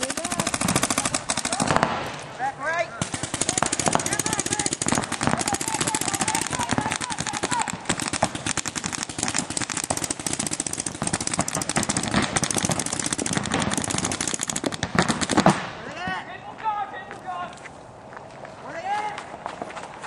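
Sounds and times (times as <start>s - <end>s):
paintball markers firing rapidly: 0.0s - 2.2s, 3.0s - 15.7s
faint voices shouting: 0.0s - 7.9s.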